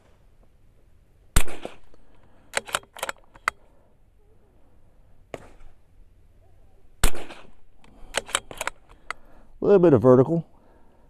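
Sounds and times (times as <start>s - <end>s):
rifle shot: 1.4s - 3.5s, 7.0s - 8.9s
metallic bolt clicks: 1.9s - 3.6s, 7.8s - 9.2s.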